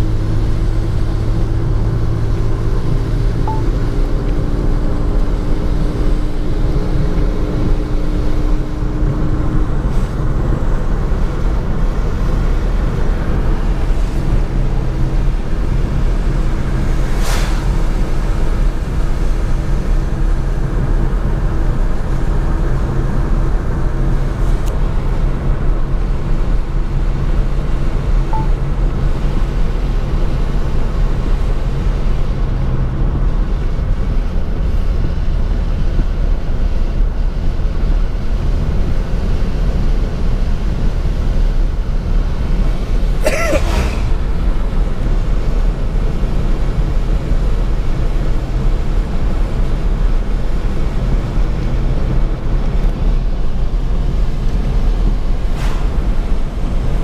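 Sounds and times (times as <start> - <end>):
car road and engine rumble: 0.0 - 57.0
brief sharp noise: 55.5 - 56.0.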